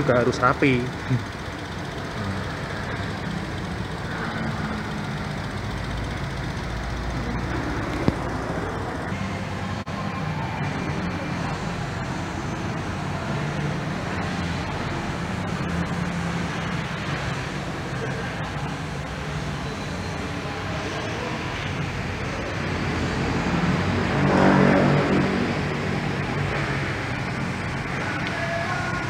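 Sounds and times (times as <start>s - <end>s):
traffic noise droning: 0.0s - 29.0s.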